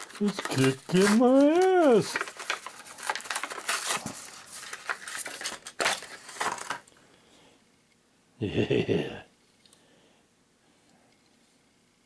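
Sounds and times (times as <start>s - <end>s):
packaging snapping: 0.0s - 6.9s
plastic packaging crinkling: 0.0s - 7.0s.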